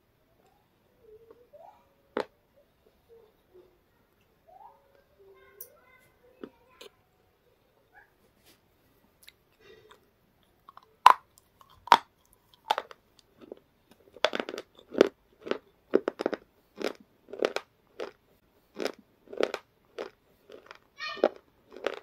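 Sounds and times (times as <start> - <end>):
crunching bites and chewing chips: 9.2 - 22.0.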